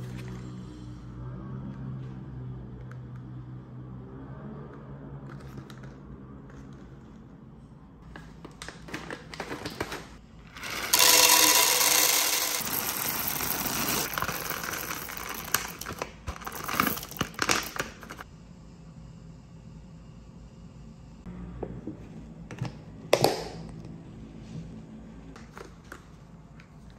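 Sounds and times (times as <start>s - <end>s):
bag crinkling: 8.6s - 18.2s
coffee beans pouring into canister: 10.5s - 18.2s.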